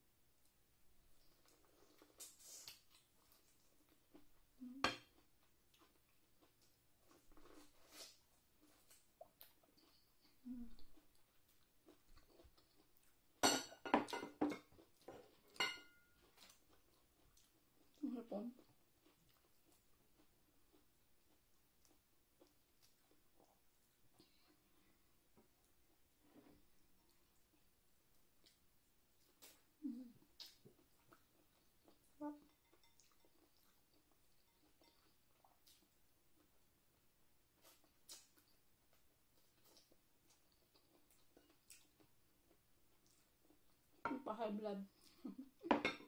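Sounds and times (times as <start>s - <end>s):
chewing and mouth clicks: 5.0s - 13.3s, 14.1s - 26.1s, 26.7s - 36.7s, 37.5s - 44.0s
dishes clinking: 13.4s - 14.7s, 15.5s - 16.1s, 45.7s - 46.0s.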